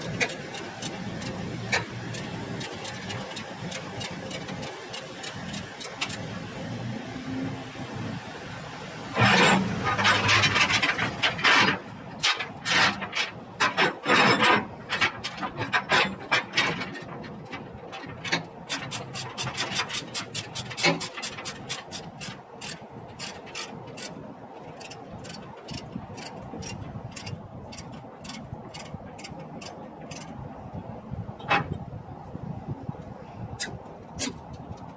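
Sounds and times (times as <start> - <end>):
ratchet chain binder cranking: 0.0 - 6.2, 18.4 - 30.4.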